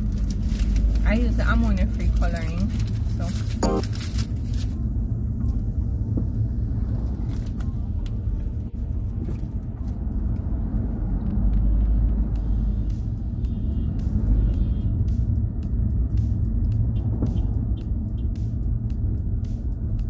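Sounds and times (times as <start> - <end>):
car engine and road rumble: 0.0 - 20.0.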